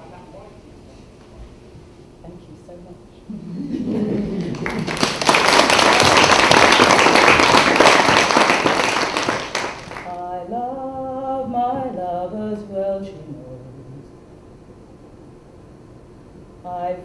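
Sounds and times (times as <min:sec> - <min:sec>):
audience applauding: 0:04.1 - 0:10.1.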